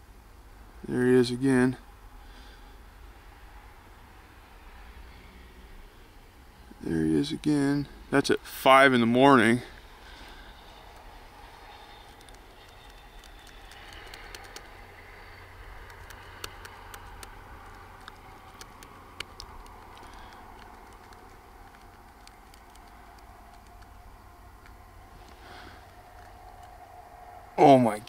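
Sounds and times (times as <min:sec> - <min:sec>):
low steady hum: 0:00.0 - 0:28.0
computer mouse clicks: 0:11.7 - 0:24.0, 0:26.0 - 0:26.8.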